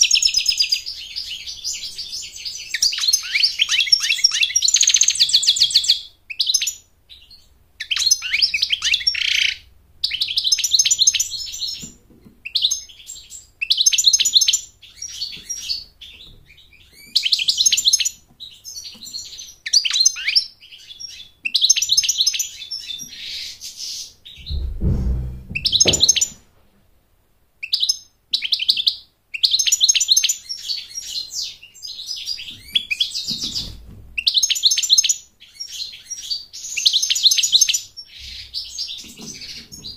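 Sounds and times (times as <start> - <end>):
low thump: 24.4 - 26.4.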